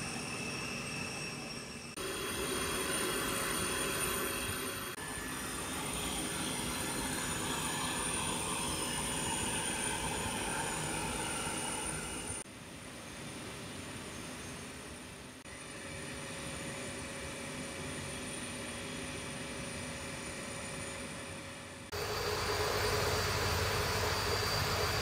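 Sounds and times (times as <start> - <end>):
turbine whine and rush: 0.0 - 12.4, 21.9 - 25.0.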